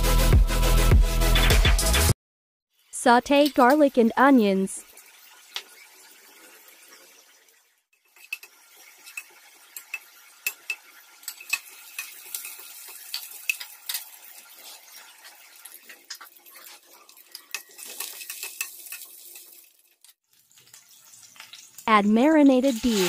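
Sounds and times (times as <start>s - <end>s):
frying sizzle: 2.7s - 23.0s
utensil scraping metal pan: 22.7s - 23.0s.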